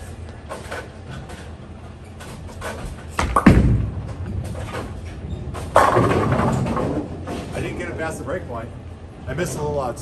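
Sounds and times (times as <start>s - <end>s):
bowling ball rolling rumble: 2.4s - 8.3s
bowling ball thud on lane: 3.2s - 4.3s, 5.7s - 7.2s.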